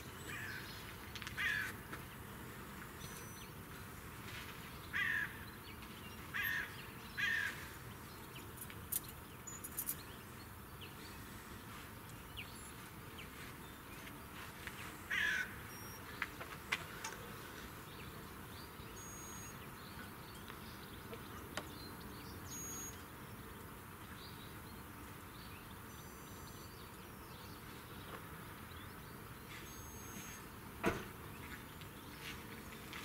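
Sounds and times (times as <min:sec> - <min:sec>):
outdoor background noise: 0:00.0 - 0:33.0
crow cawing: 0:01.4 - 0:01.8, 0:04.9 - 0:05.4, 0:06.3 - 0:07.6, 0:15.1 - 0:15.6.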